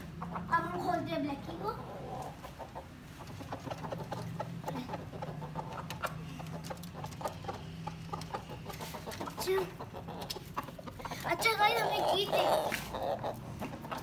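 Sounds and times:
roosters clucking: 0.0 - 14.0.

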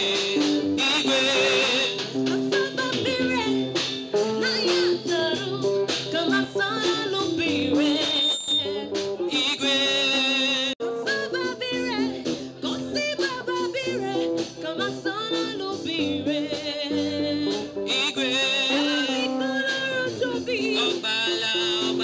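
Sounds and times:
instrumental accompaniment: 0.0 - 22.0
woman singing through loudspeaker: 0.0 - 22.0.

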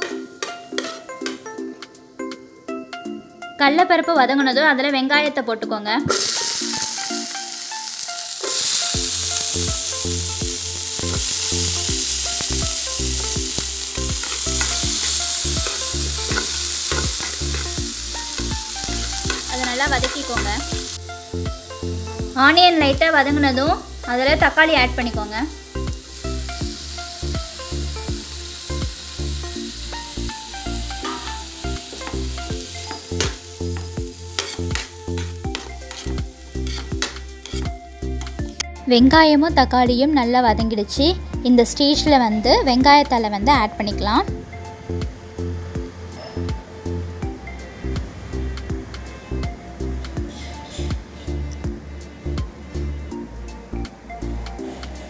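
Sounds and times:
shallots sizzling in hot oil: 0.0 - 1.7, 6.1 - 38.6
background music with beat: 0.0 - 3.6, 6.0 - 55.0
metal spoon clinking on pan: 32.9 - 38.3.

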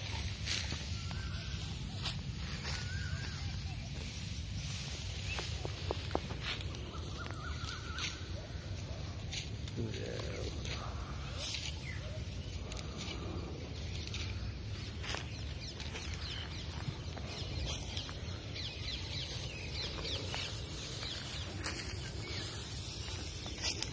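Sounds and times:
faint bird chirps: 0.0 - 9.3.

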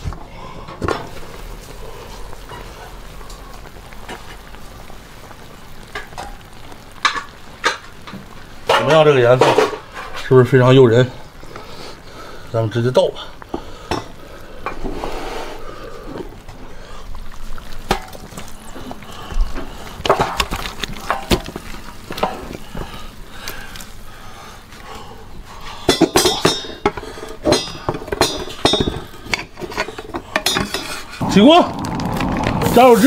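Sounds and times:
metal pot and utensils clinking: 25.8 - 31.2.

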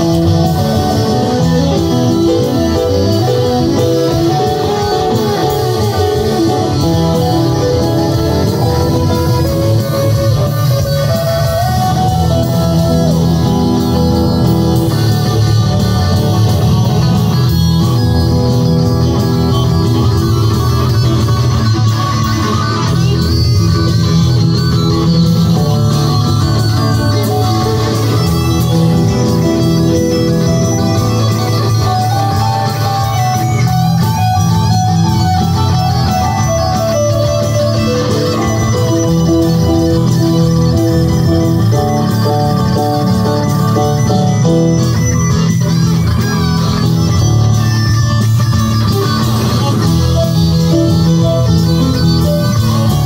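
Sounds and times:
electric guitar lead: 0.0 - 53.0
live band playing rock: 0.0 - 53.0.

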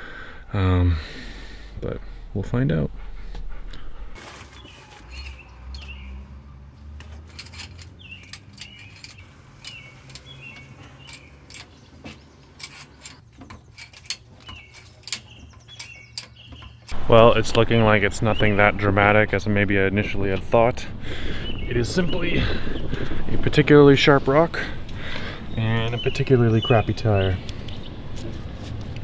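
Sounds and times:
steady low hum: 0.0 - 4.2
small birds chirping: 3.2 - 6.6, 7.5 - 28.4.

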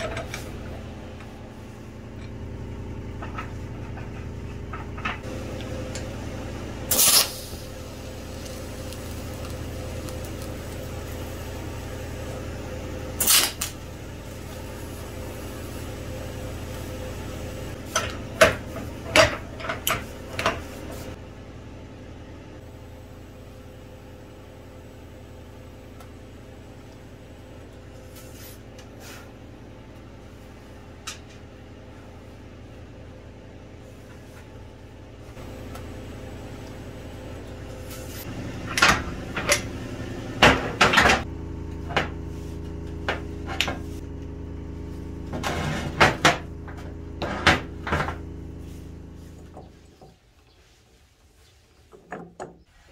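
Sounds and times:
steady low hum: 0.0 - 51.3
welding arc bursts: 6.9 - 12.0, 13.2 - 14.4.

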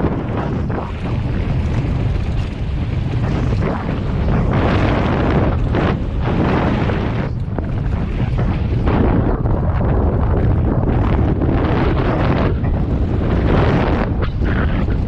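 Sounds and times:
constant low rumble: 0.0 - 15.0
wind buffeting microphone: 0.0 - 15.0.

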